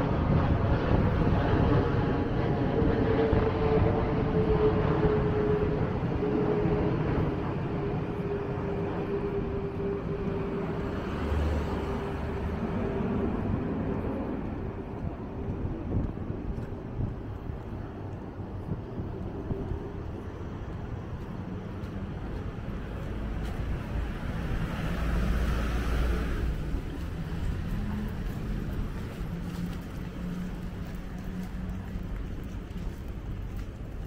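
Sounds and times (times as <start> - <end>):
rumble of road traffic: 0.0 - 34.0
vehicle passing close: 5.2 - 15.1, 22.4 - 33.1.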